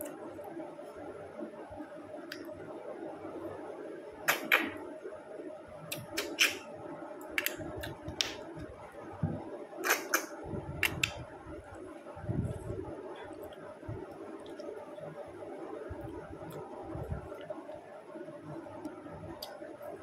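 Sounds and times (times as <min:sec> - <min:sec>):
snail shells clicking: 0:07.2 - 0:08.4.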